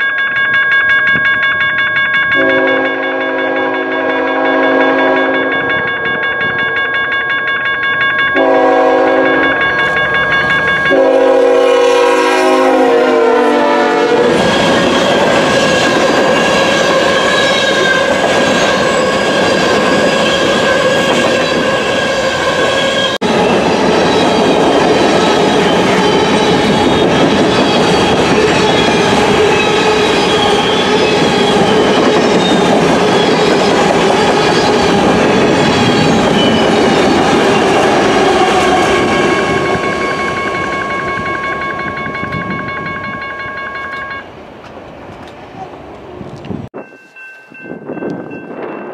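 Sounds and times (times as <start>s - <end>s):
train cars rumbling and clacking: 0.0s - 48.9s
locomotive air horn blasts: 2.4s - 5.5s, 8.4s - 9.5s, 10.9s - 14.6s.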